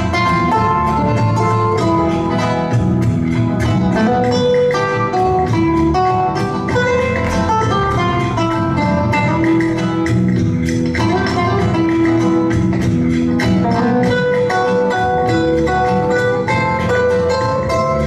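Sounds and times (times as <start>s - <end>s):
flamenco guitar music: 0.0s - 18.0s.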